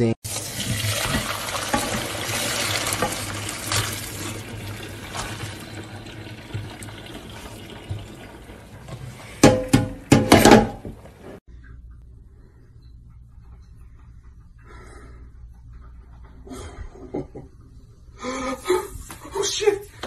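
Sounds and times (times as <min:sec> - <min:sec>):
tap water running into pot: 0:00.2 - 0:10.9.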